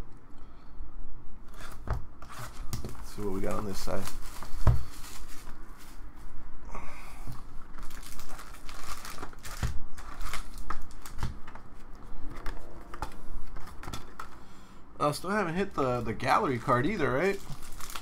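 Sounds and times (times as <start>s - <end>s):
shrink wrap tearing and crinkling: 2.4s - 5.6s, 7.7s - 11.6s, 16.5s - 18.0s
foil packs rustling: 2.4s - 6.0s, 7.7s - 11.6s, 15.7s - 18.0s.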